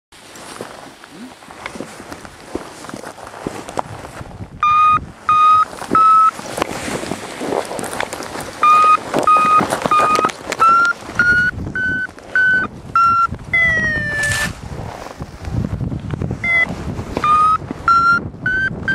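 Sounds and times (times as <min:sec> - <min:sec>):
wind rushing past microphone: 0:00.6 - 0:18.9
variometer beeping: 0:04.6 - 0:06.4, 0:08.6 - 0:14.5, 0:16.4 - 0:18.9.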